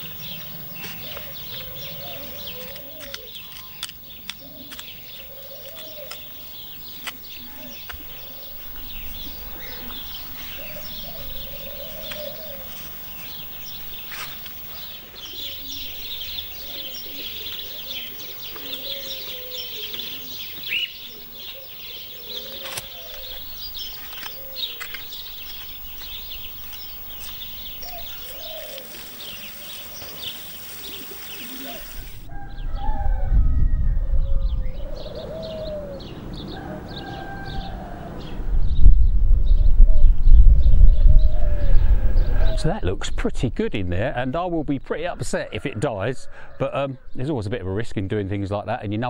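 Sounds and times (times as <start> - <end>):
dove cooing: 0.0 - 3.8, 4.4 - 33.2, 34.3 - 38.4
small birds chirping: 0.0 - 32.9.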